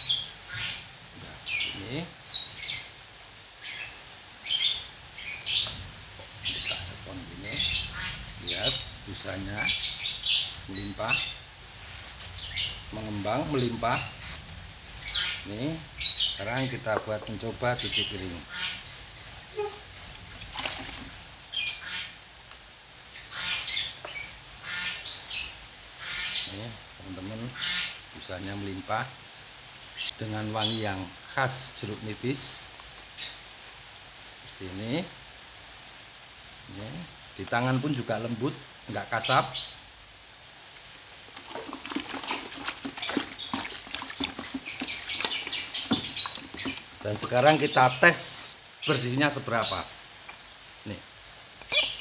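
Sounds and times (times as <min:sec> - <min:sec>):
bird chirping and squawking: 0:00.0 - 0:03.0, 0:03.6 - 0:16.9, 0:17.8 - 0:22.2, 0:23.2 - 0:26.6, 0:41.4 - 0:49.9, 0:51.6 - 0:52.0
hands squeaking on wet plate: 0:19.5 - 0:21.2, 0:41.3 - 0:48.0, 0:51.6 - 0:52.0
water sloshing in bucket: 0:20.1 - 0:21.3, 0:41.3 - 0:48.0.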